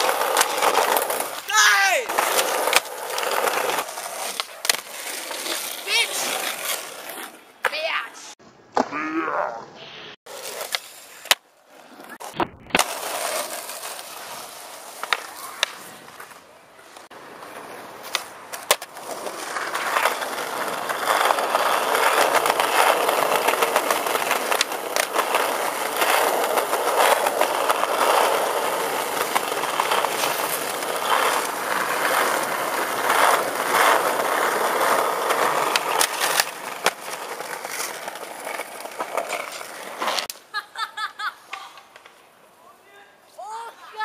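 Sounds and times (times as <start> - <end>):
skateboard wheels rolling on stone: 0.0 - 9.7, 10.3 - 42.4
skateboard clacks and landings: 12.1 - 13.9.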